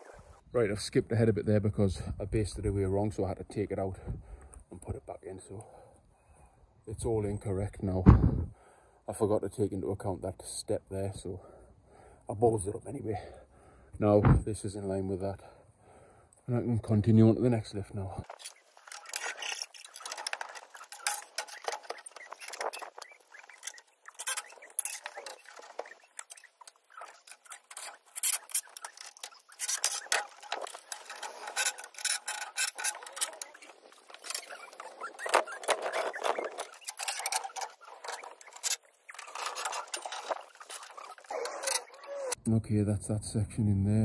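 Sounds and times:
metal tubes clinking and clanking: 18.2 - 42.4.

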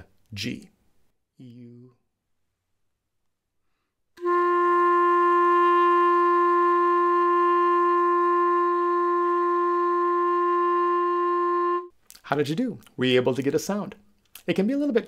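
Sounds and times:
clarinet playing a steady note: 4.2 - 11.9.

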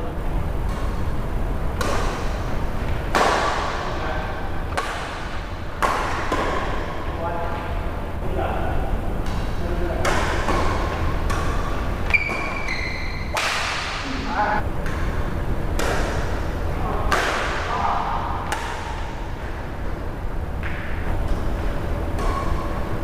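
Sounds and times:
steady low hum: 0.0 - 23.0
rackets striking shuttlecock: 0.6 - 3.9, 4.7 - 7.0, 9.2 - 14.1, 14.8 - 17.7, 18.4 - 19.2, 20.6 - 23.0
short high squeak: 12.1 - 13.3.

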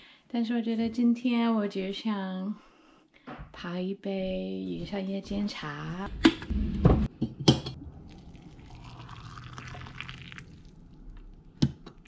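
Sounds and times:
water pouring and splashing: 7.8 - 12.0.

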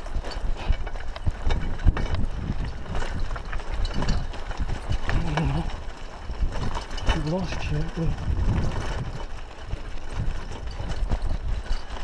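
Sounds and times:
bicycle rattling on dirt track: 0.0 - 12.0.

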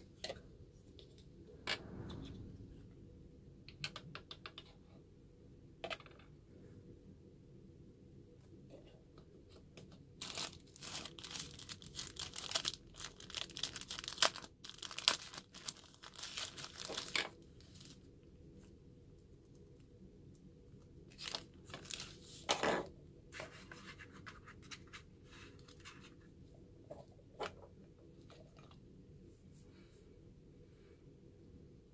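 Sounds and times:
plastic packaging crinkling: 10.2 - 18.1, 21.1 - 22.4.

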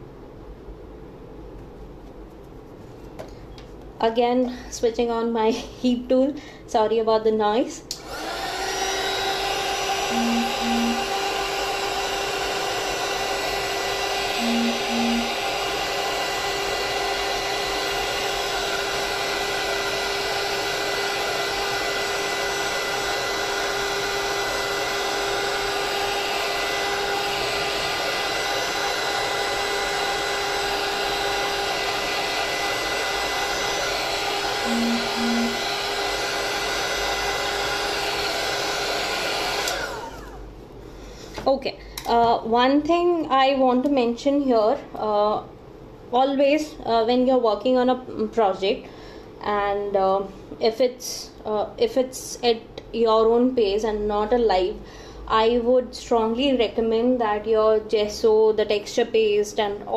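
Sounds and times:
heat gun fan whine: 7.8 - 42.6.

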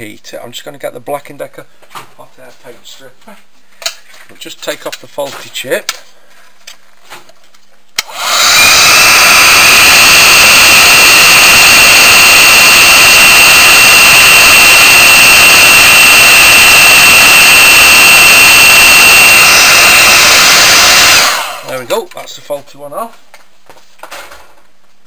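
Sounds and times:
hot air fan rushing with whine: 8.1 - 16.8, 17.4 - 21.7.

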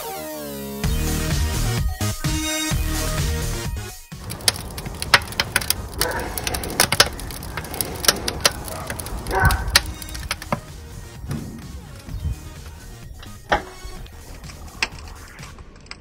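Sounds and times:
wood fire crackling and popping: 4.2 - 16.0.

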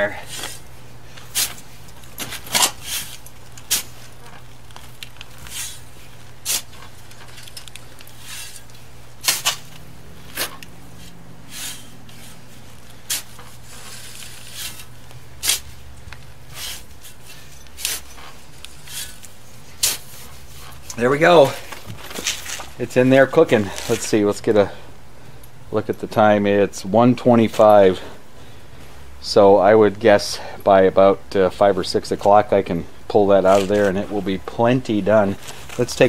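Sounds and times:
shovel scraping sand: 0.1 - 4.2, 5.4 - 6.9, 8.0 - 15.8, 16.5 - 21.5.

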